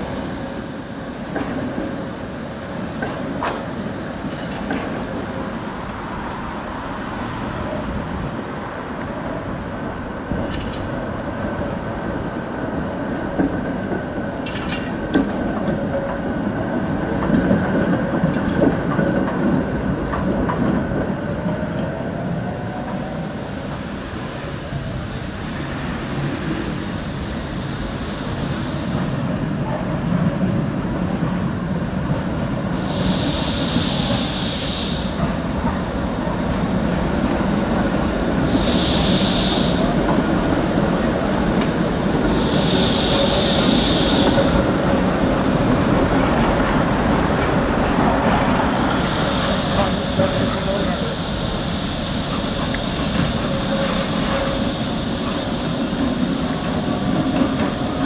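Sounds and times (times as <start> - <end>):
road traffic: 0.0 - 58.0
tram wheels rumbling on rails: 0.0 - 58.0
tram wheel squeal: 21.3 - 29.4, 32.8 - 35.5, 38.4 - 41.2, 42.1 - 58.0.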